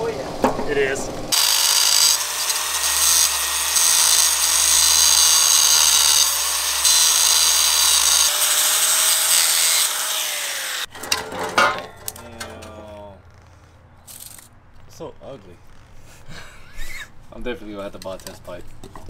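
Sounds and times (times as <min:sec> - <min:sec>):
power tool running: 0:01.2 - 0:10.9.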